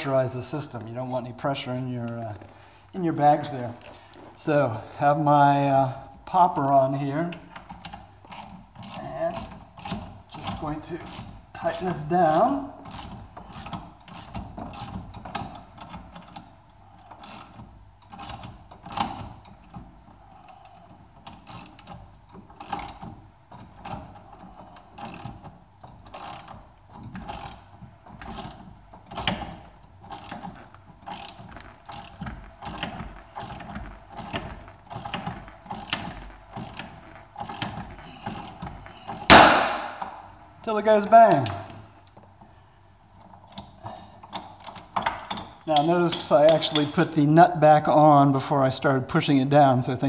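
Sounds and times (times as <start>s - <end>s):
ratchet wrench clicking: 7.8s - 15.6s, 17.0s - 19.8s, 21.2s - 23.1s, 24.8s - 26.6s, 27.2s - 39.4s
joint popping apart: 39.1s - 40.2s.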